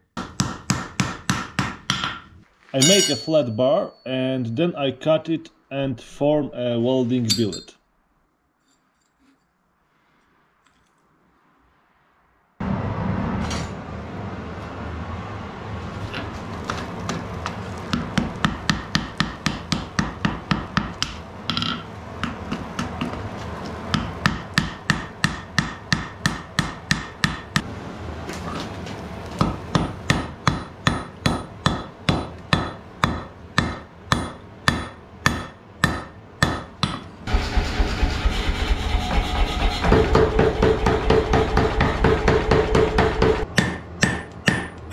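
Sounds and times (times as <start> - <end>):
hammer striking steel on anvil: 0.2 - 2.2, 2.8 - 4.0, 7.3 - 7.7, 17.9 - 23.2, 23.9 - 27.6, 29.4 - 44.9
pneumatic air hammer pounding: 29.4 - 44.8.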